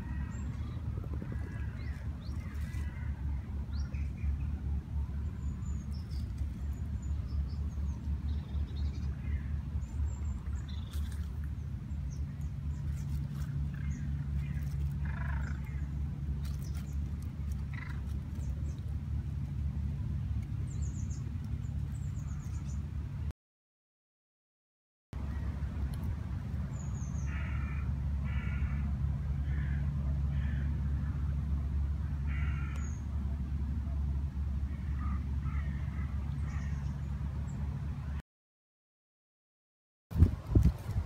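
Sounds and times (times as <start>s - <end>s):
low rumble: 0.0s - 23.3s.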